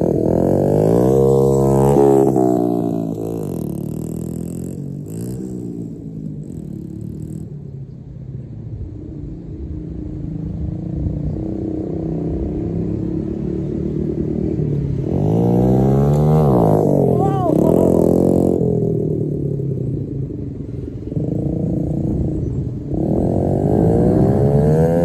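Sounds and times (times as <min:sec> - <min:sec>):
pit bike engine revving: 0:00.0 - 0:07.5, 0:11.3 - 0:20.1, 0:20.9 - 0:25.0.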